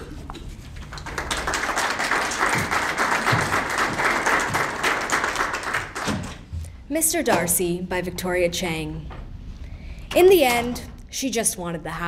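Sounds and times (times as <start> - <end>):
audience applauding: 0.8 - 6.2.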